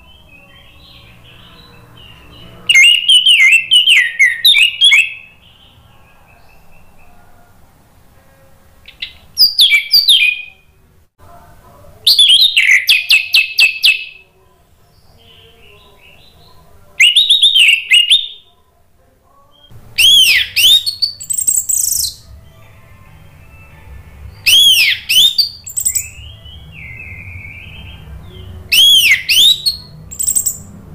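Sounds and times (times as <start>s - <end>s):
thrush singing whistled notes: 0.0s - 7.1s, 8.9s - 10.7s, 12.1s - 14.2s, 17.0s - 18.5s, 19.6s - 30.7s.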